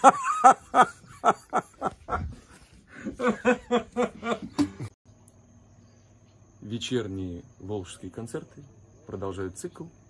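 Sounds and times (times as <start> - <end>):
people laughing heartily: 0.0 - 5.0.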